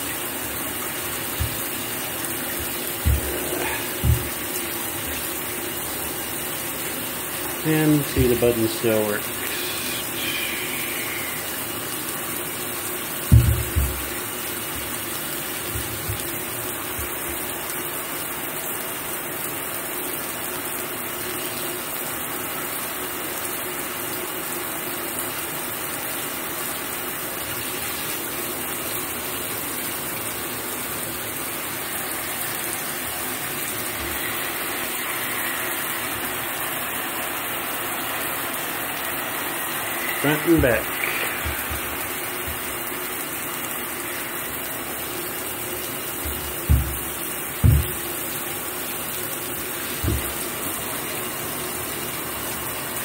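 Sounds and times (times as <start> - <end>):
shower water spray hissing: 0.0 - 19.0, 19.6 - 53.0
loud low thump: 46.7 - 48.0.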